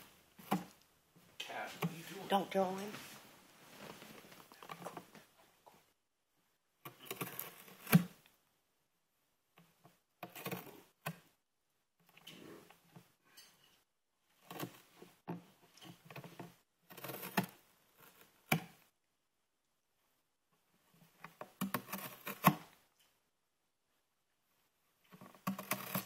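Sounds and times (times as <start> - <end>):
cat tearing cardboard: 6.9 - 8.2, 10.2 - 11.2, 14.4 - 15.0, 15.9 - 18.8, 21.3 - 22.8, 25.1 - 26.0.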